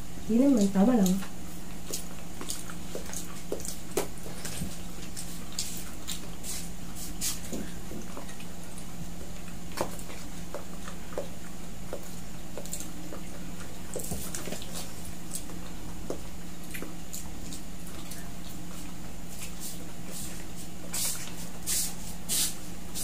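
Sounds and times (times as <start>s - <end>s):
steady low hum: 0.0s - 23.0s
chewing food: 0.1s - 21.6s.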